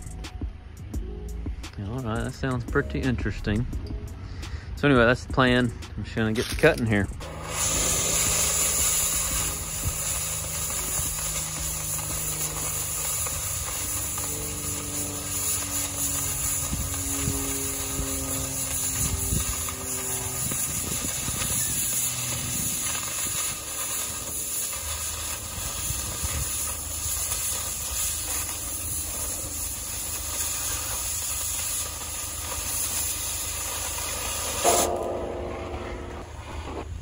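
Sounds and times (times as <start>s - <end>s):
cutting torch hissing: 7.2s - 35.2s
torch sharp pop: 7.2s - 35.6s.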